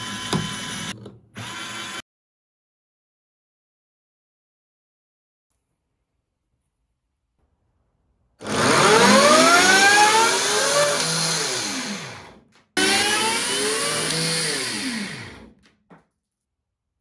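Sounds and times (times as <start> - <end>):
electric motor whine: 12.8 - 15.3.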